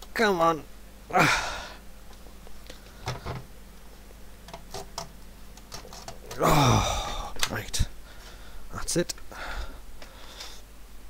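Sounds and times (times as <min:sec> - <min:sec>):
faint clicks and knocks: 0:02.1 - 0:06.4.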